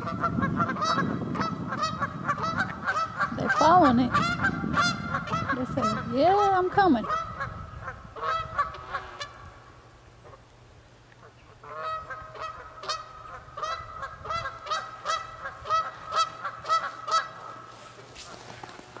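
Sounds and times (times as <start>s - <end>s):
geese honking: 0.0s - 10.5s, 11.2s - 19.0s.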